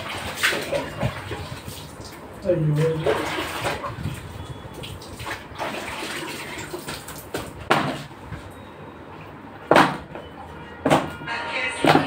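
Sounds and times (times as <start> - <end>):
water splashing and sloshing: 0.0 - 8.6.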